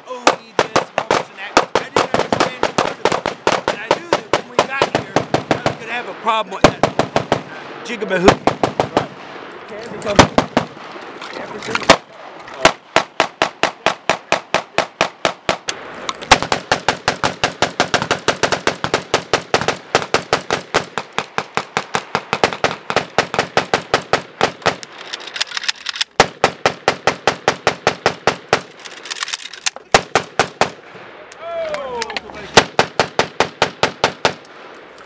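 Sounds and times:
rapid rifle gunfire: 0:00.2 - 0:06.0, 0:06.6 - 0:07.6, 0:08.2 - 0:09.4, 0:10.1 - 0:10.9, 0:11.9 - 0:15.7, 0:16.3 - 0:24.8, 0:26.2 - 0:28.7, 0:29.9 - 0:30.8, 0:32.5 - 0:34.4.

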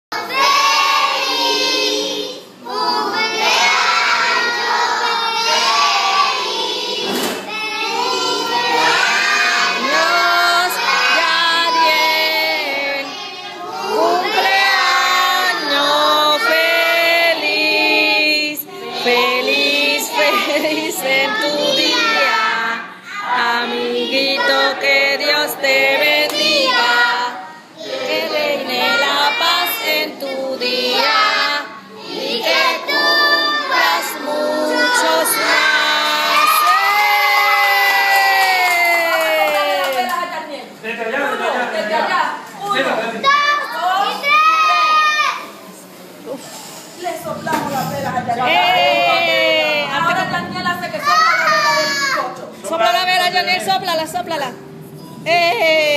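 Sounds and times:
young children singing: 0:00.1 - 0:37.6, 0:47.3 - 0:52.4.

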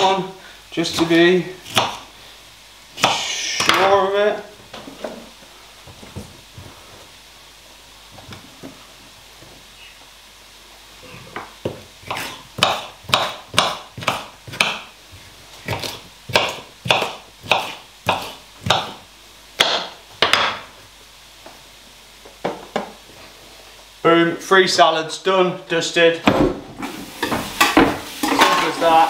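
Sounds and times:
knife chopping on board: 0:01.7 - 0:02.0, 0:03.0 - 0:03.8, 0:11.6 - 0:14.9, 0:15.7 - 0:19.0, 0:19.6 - 0:20.6.

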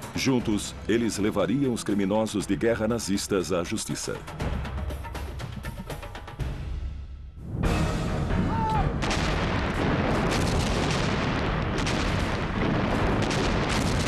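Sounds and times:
artillery explosions: 0:08.9 - 0:14.0
continuous gunfire: 0:09.0 - 0:14.0.

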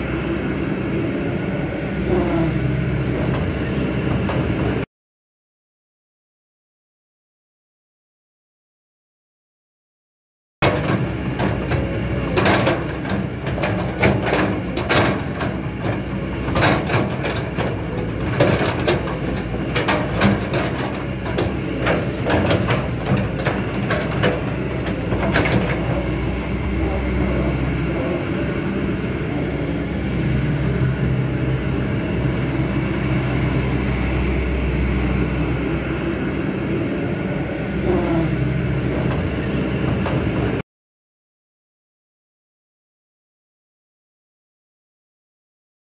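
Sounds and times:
excavator diesel engine running: 0:00.0 - 0:04.9, 0:10.6 - 0:40.6.

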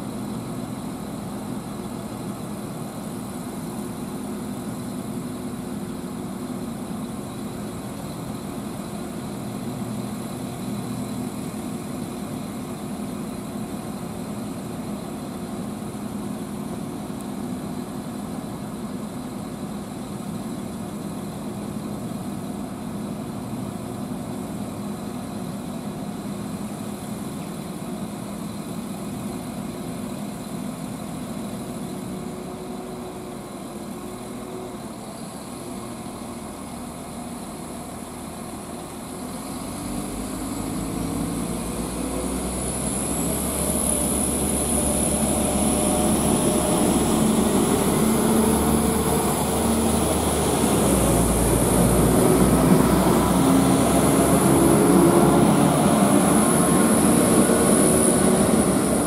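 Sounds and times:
diesel train engine idling: 0:00.0 - 0:59.0
train accelerating away: 0:39.4 - 0:59.0
high whine: 0:40.6 - 0:59.0.

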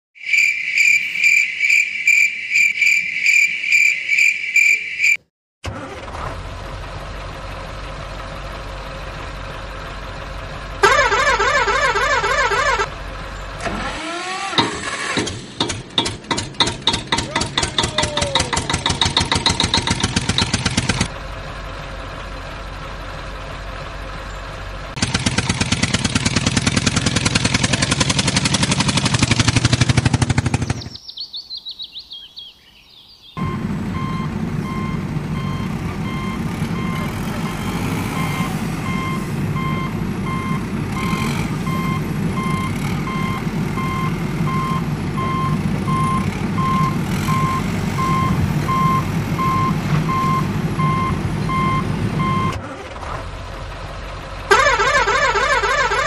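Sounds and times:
high rapid chirping: 0:00.2 - 0:05.2
engine cranking and chugging: 0:05.6 - 0:31.0, 0:33.4 - 0:56.0
engine hum: 0:05.6 - 0:31.0, 0:32.6 - 0:56.0.

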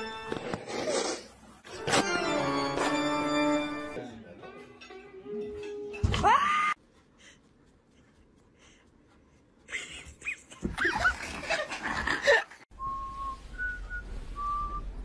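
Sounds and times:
short whistle-like notes: 0:12.7 - 0:15.0.

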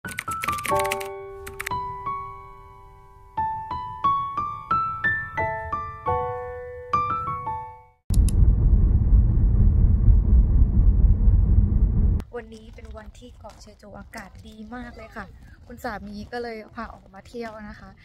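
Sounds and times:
piano melody: 0:00.1 - 0:08.0
road and wind noise in car: 0:08.2 - 0:12.2.

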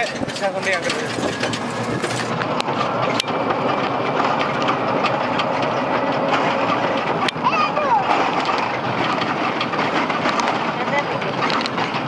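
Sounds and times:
rattling: 0:00.0 - 0:12.0
vehicle engine and ride noise: 0:00.0 - 0:12.0.

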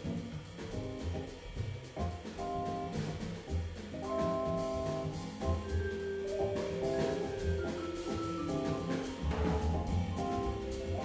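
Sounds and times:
drum kit cymbals: 0:00.0 - 0:11.0
upright bass notes: 0:00.0 - 0:11.0
vibraphone chords: 0:05.6 - 0:11.0.

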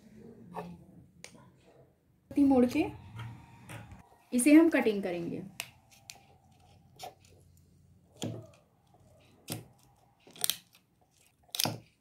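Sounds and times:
scissors snipping thin plastic: 0:09.4 - 0:12.0.

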